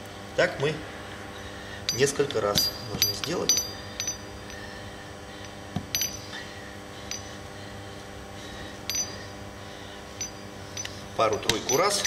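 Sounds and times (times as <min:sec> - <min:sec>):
pump lever metallic clink: 0:10.2 - 0:12.0.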